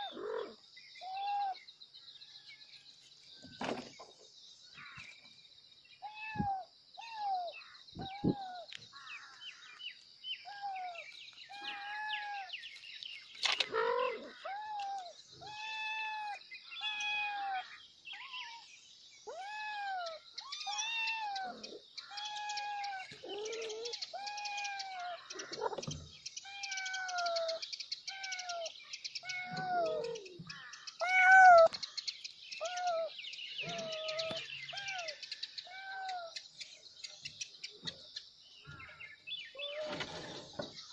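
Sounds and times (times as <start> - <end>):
kitten meowing: 31.0 - 31.7.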